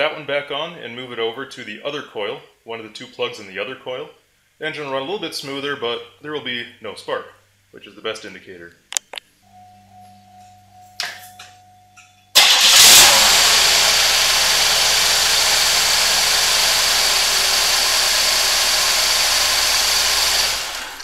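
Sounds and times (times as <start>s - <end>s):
car engine cranking and starting: 12.4s - 21.0s
engine running with misfire: 12.4s - 21.0s.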